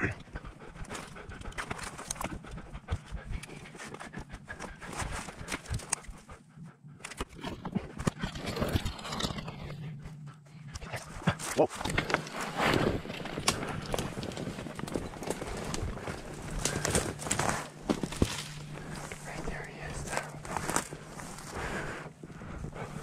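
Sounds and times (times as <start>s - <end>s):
branches brushing and snapping: 11.4s - 21.8s
footsteps crunching through snow: 11.4s - 23.0s.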